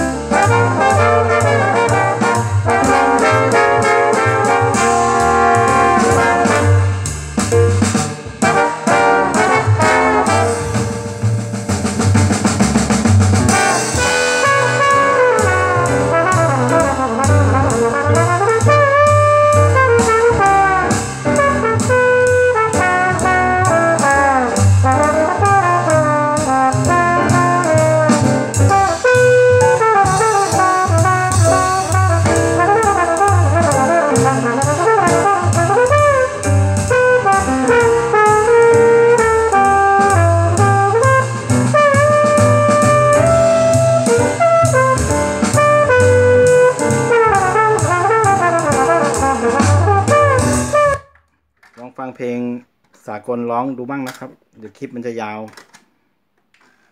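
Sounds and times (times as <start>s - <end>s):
brass jazz music with drums: 0.0s - 51.2s.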